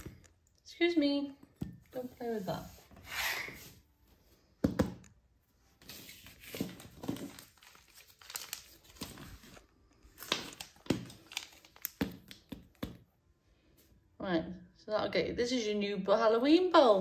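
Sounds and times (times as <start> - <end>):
foil pouch tearing and crinkling: 7.1 - 12.4.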